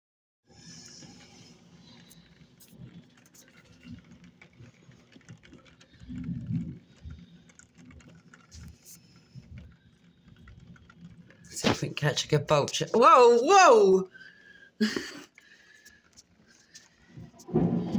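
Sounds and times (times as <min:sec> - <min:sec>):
rain pattering: 0:00.5 - 0:17.9
low thunder rumble: 0:17.2 - 0:17.9.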